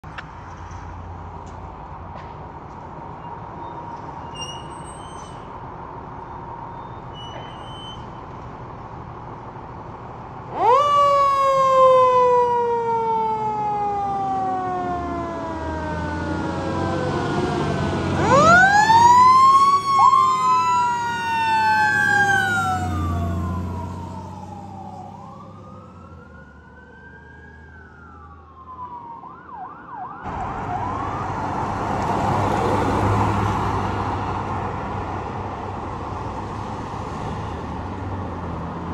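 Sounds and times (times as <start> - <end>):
passing vehicle road noise: 0.0 - 38.9
fire engine siren: 10.4 - 34.2.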